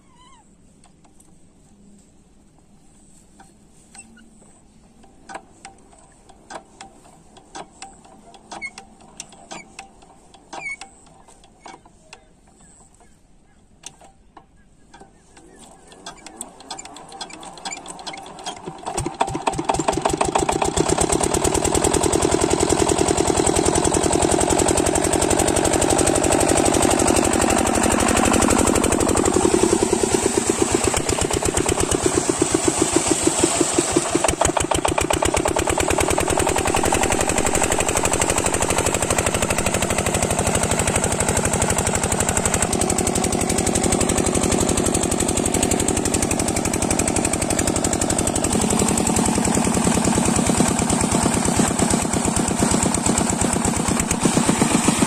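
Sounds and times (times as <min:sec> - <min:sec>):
diesel pump engine running: 0:14.8 - 0:55.0.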